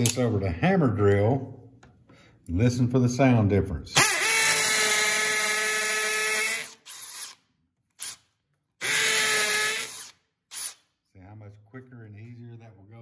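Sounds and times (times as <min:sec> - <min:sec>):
hammer drill into concrete: 0:04.0 - 0:07.4, 0:08.0 - 0:10.9.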